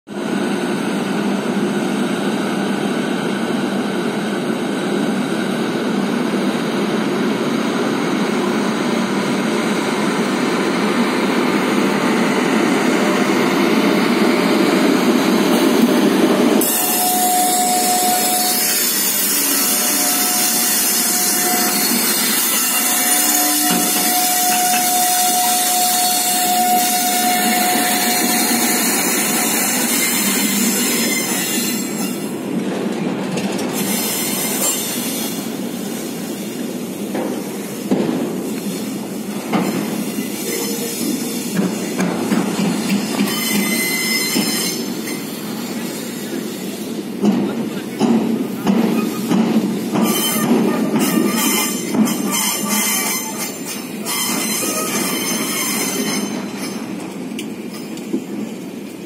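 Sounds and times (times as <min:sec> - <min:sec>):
electric locomotive passing: 0:00.2 - 0:59.0
high wheel squeal: 0:14.7 - 0:32.3, 0:33.8 - 0:35.5, 0:39.9 - 0:41.6, 0:43.0 - 0:47.0, 0:50.0 - 0:57.0.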